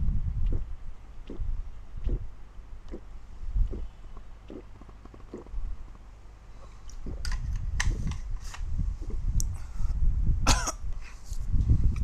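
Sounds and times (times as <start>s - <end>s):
man clearing his throat: 10.4s - 10.9s
man coughing: 10.4s - 10.9s.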